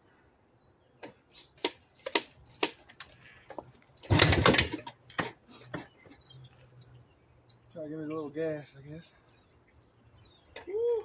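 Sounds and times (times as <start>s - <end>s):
kickstart gear clicks and knocks: 1.6s - 5.4s
engine turning over: 4.0s - 4.9s.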